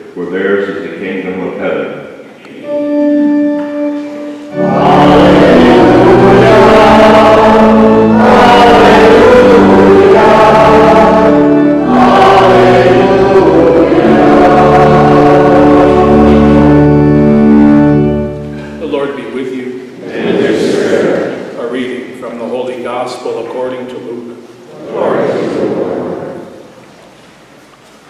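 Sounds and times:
choir singing a hymn: 0:02.6 - 0:19.2, 0:19.9 - 0:22.0, 0:24.7 - 0:26.9
organ chord: 0:02.6 - 0:20.0.

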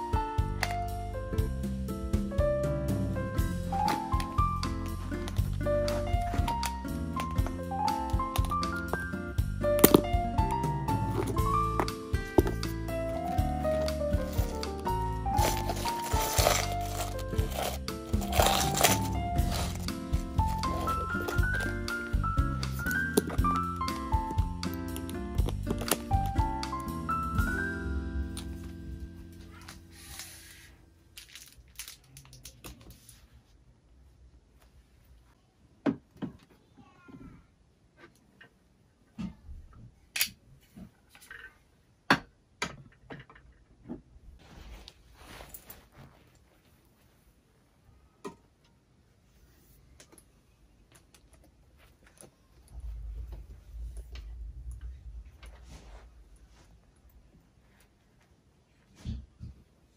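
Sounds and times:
piano chord: 0:00.0 - 0:30.4
packaging rustling and crinkling: 0:13.4 - 0:21.8, 0:31.2 - 0:32.8
low bumping rumble: 0:52.7 - 0:57.0.

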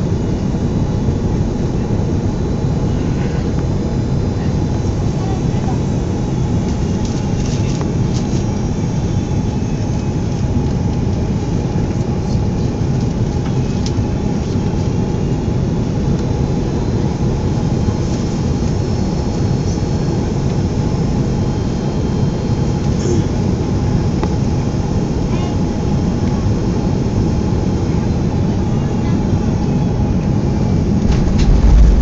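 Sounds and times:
airplane cabin roar: 0:00.0 - 0:32.0
steady mid-pitched hum: 0:00.0 - 0:32.0.

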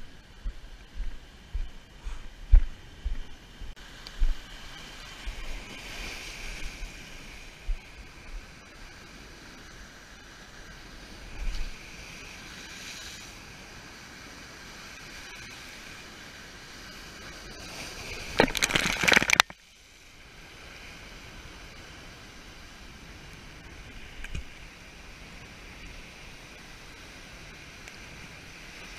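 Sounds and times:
surf washing over rocks: 0:03.8 - 0:28.9
crackling wave surge: 0:17.3 - 0:19.5.

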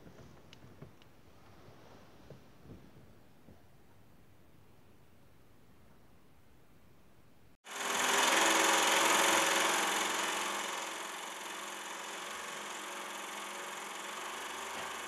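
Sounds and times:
film projector whirring and clattering: 0:07.7 - 0:15.0.

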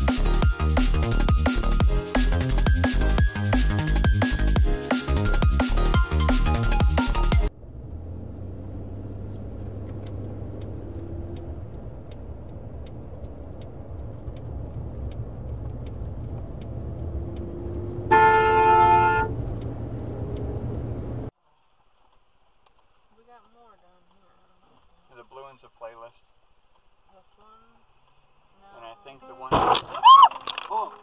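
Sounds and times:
car engine and road rumble: 0:00.0 - 0:25.6
car horn: 0:17.9 - 0:20.0.

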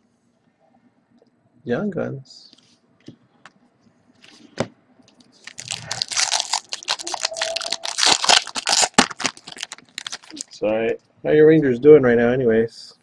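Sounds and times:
foil wrapper tearing and crinkling: 0:05.4 - 0:10.6.

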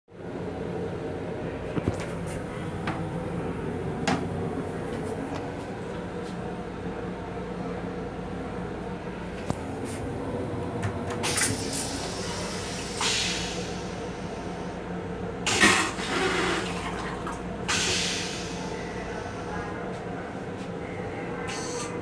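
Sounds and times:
toilet flushing: 0:11.2 - 0:13.9, 0:15.4 - 0:18.6.

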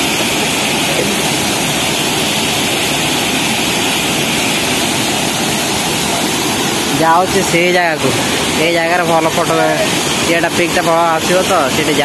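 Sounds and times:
waterfall roaring: 0:00.0 - 0:12.0.

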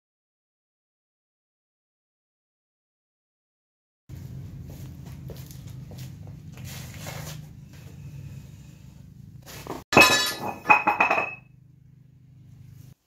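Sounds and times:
low steady hum: 0:04.1 - 0:13.0
metal clanging on concrete: 0:09.9 - 0:11.5.

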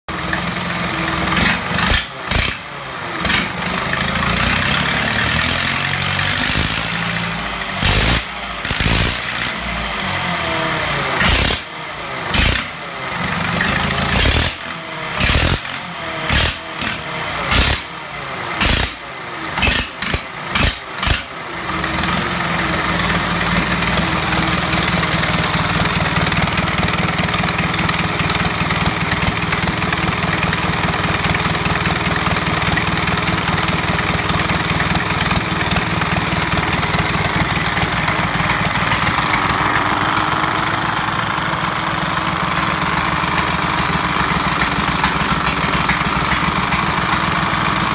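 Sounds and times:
tractor diesel engine running: 0:00.1 - 0:47.9.

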